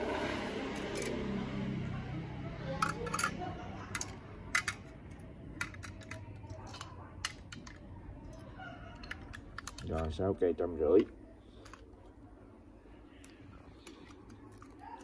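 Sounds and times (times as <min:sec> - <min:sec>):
steel knives clinking together: 0:02.8 - 0:04.8.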